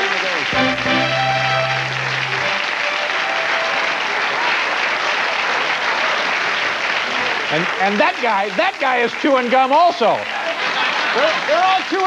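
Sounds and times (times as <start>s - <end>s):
audience applauding: 0.0s - 12.0s
held music chord: 0.5s - 4.0s.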